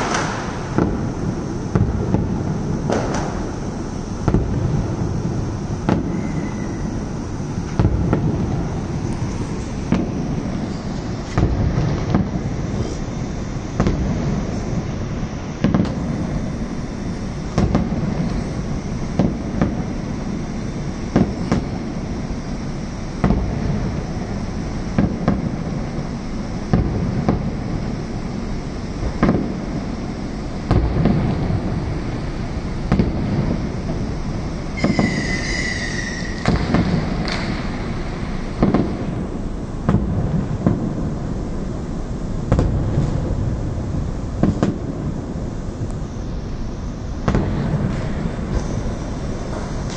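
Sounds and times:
fireworks bursting: 0.0 - 49.9.

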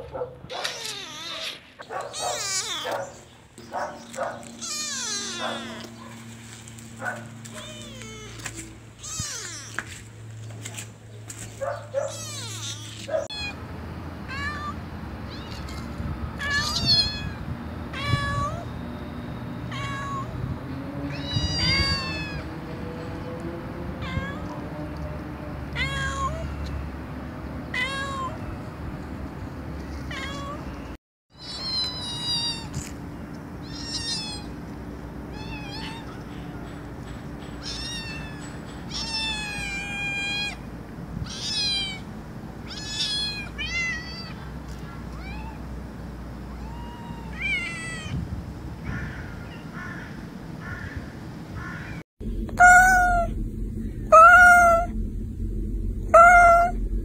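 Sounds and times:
cats meowing: 0.5 - 3.3, 3.9 - 6.3, 7.4 - 9.9, 12.0 - 13.6, 14.2 - 18.7, 19.7 - 20.3, 21.1 - 22.5, 24.0 - 24.6, 25.7 - 26.5, 27.8 - 28.4, 30.1 - 30.7, 31.4 - 32.9, 33.6 - 34.5, 35.3 - 36.6, 37.6 - 40.7, 41.3 - 42.0, 42.6 - 45.7, 46.5 - 48.2, 51.7 - 53.3, 54.1 - 54.9, 56.1 - 56.8
low hum: 52.2 - 57.0.

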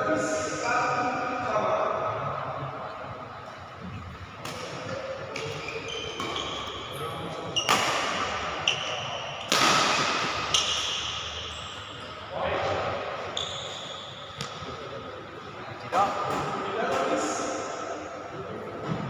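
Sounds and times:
shoe squeaks: 5.4 - 8.0, 8.6 - 9.2, 13.3 - 14.3
rackets striking shuttlecock: 7.6 - 11.4.

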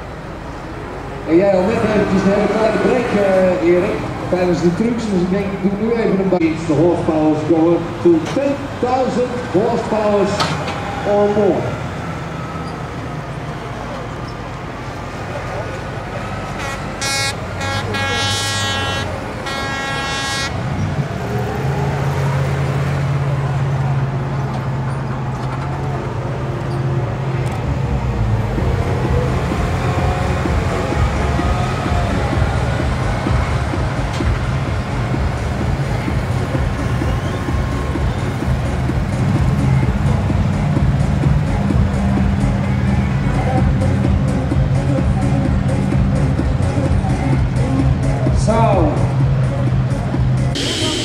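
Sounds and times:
low engine hum: 0.0 - 51.0
vehicle horn blasts: 16.6 - 20.6.

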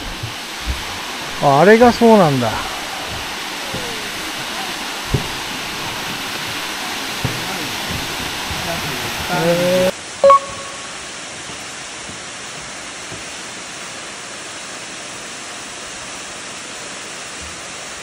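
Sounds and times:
distant waterfall rushing: 0.0 - 18.0
brief high tone: 10.2 - 11.0.

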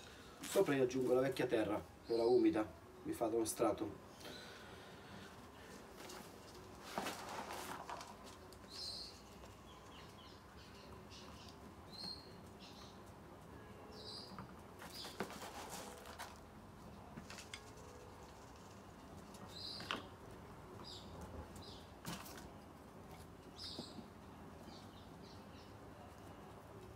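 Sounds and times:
soil rustling and clicking: 6.0 - 10.3, 17.1 - 20.1
bird chirps: 8.7 - 13.0, 13.6 - 15.2, 19.5 - 20.1.

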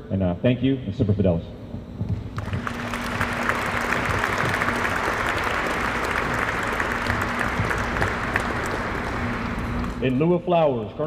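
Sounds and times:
audience applauding: 2.4 - 10.1.

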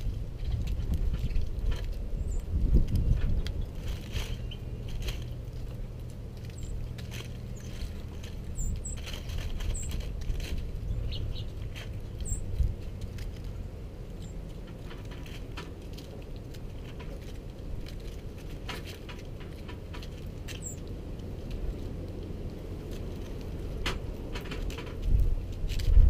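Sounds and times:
low steady rumble: 0.0 - 26.0
birds pecking on wooden table: 0.1 - 26.0
high bird chirps: 8.5 - 9.0, 10.8 - 12.5, 20.6 - 20.8.

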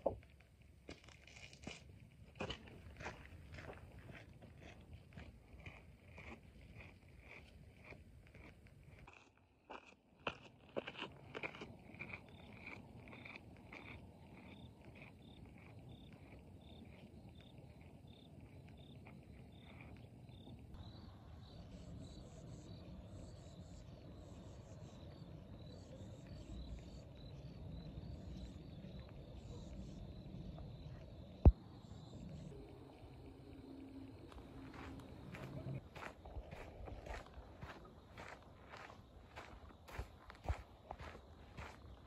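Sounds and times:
crickets chirping: 10.2 - 42.0.

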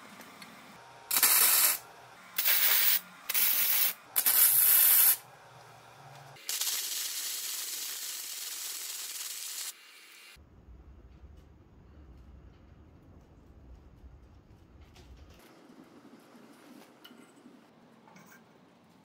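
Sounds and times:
welding arc crackle: 1.1 - 1.8, 2.4 - 5.2, 6.4 - 10.4
steady hiss: 6.4 - 10.4.

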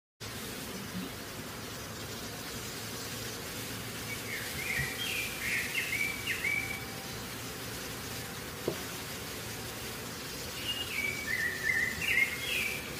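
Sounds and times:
background hiss: 0.2 - 12.9
bird chirping: 4.0 - 7.4, 10.3 - 12.9.

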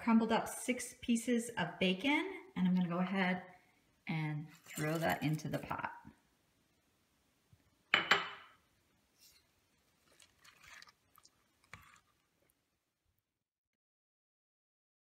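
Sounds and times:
wet squelches of stirred soup: 9.1 - 12.9.

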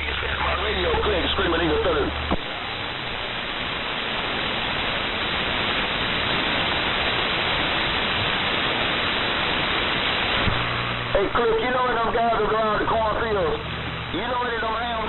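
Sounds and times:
radio static hiss: 0.0 - 15.0.

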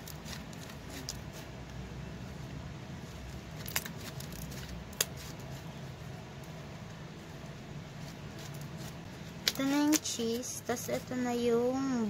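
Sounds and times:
slime squishing: 0.0 - 1.7
steady low hum: 0.0 - 12.0.

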